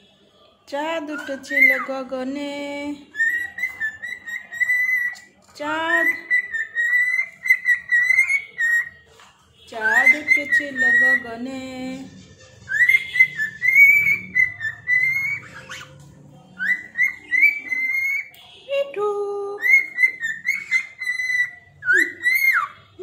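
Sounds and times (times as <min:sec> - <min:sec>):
cockatiel whistling chirps: 0:03.1 - 0:05.3, 0:06.0 - 0:09.0, 0:09.8 - 0:11.2, 0:12.6 - 0:16.0, 0:16.6 - 0:18.4, 0:19.6 - 0:22.8.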